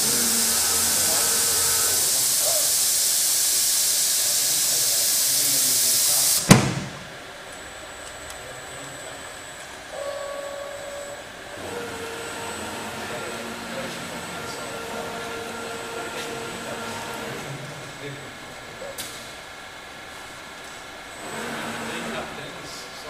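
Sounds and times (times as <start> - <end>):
loud air hiss: 0.0 - 7.2
sharp machine knock: 6.4 - 7.2.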